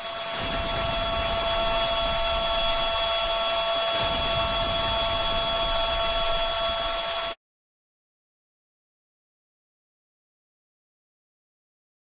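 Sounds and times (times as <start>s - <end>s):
rain-like hiss: 0.0s - 7.4s.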